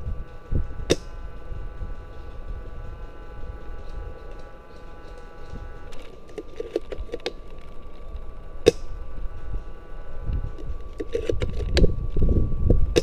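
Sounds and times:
airsoft rifle shot: 0.8s - 1.2s
rustling handling noise: 1.7s - 8.6s
small clicks: 2.0s - 9.7s.

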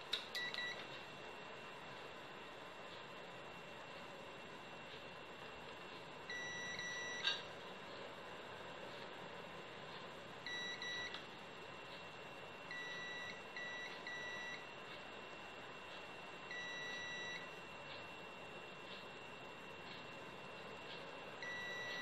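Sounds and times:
faint high hum: 0.0s - 22.0s
multimeter continuity buzzer beeping: 0.1s - 0.9s, 6.2s - 7.5s, 10.4s - 11.3s, 12.4s - 14.9s, 15.5s - 18.7s, 21.3s - 22.0s.

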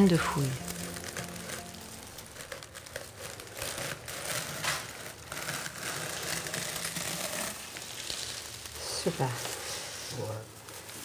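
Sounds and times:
shredded paper rustling: 0.0s - 11.0s.

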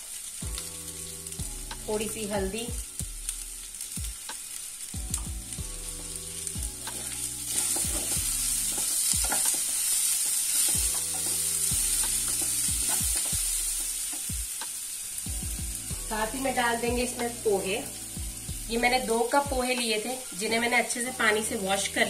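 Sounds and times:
vegetables sizzling in pan: 0.0s - 22.0s
spatula scraping and knocking pan: 6.8s - 14.2s.

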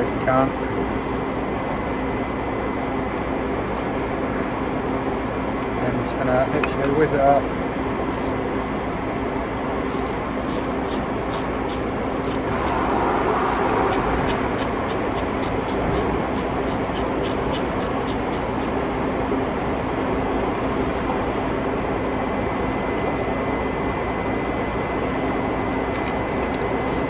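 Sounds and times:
workshop drone with low hum: 0.0s - 27.0s
hand ratchet clicking: 8.1s - 8.4s, 9.8s - 12.8s, 13.4s - 18.8s.

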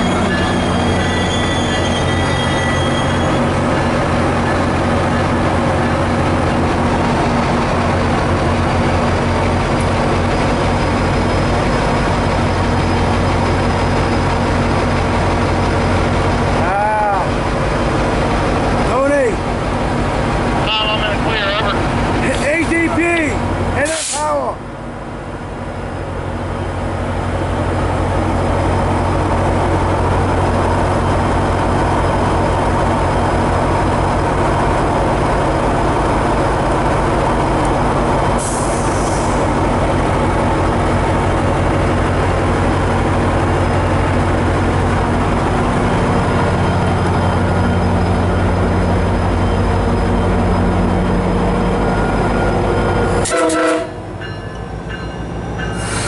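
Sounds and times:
diesel locomotive engine drone: 0.0s - 56.0s
air hissing: 23.8s - 24.3s, 38.4s - 39.5s, 55.7s - 56.0s.

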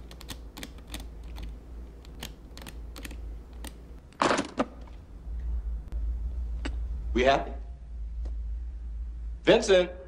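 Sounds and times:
combination lock wheels clicking: 0.0s - 5.0s.

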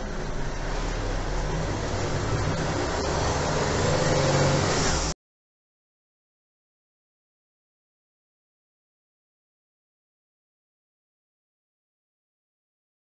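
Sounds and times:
engine and road noise: 0.0s - 5.2s.

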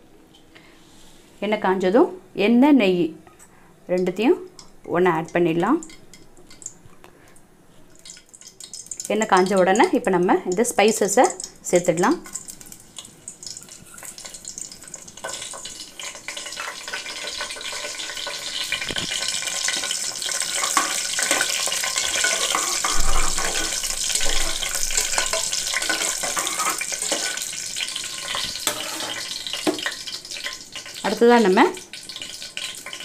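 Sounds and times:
spices sizzling in oil: 7.7s - 33.0s
metal spatula scraping pot: 16.4s - 29.9s.

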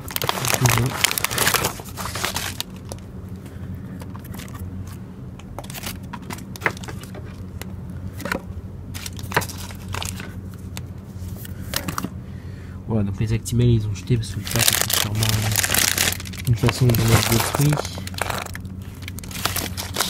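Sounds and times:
plastic packaging rustling: 0.0s - 3.0s, 5.6s - 7.4s, 9.0s - 10.4s, 14.4s - 20.0s
steady low hum: 0.0s - 20.0s.

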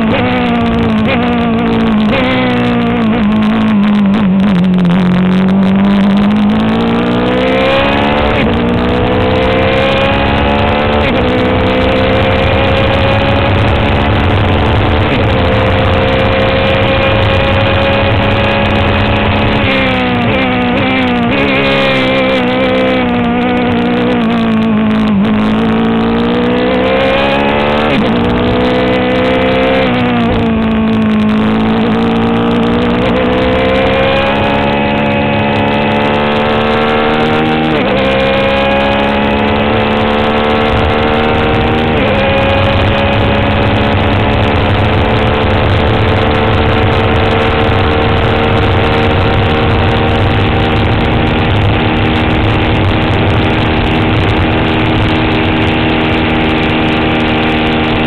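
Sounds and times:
racing car engine at full throttle: 0.0s - 58.0s.

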